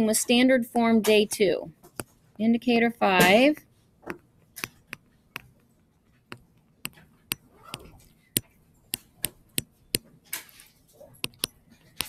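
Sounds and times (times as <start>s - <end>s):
stylus tapping touchscreen: 4.1s - 10.1s, 11.2s - 12.0s
pen stroke scratch: 11.2s - 12.0s.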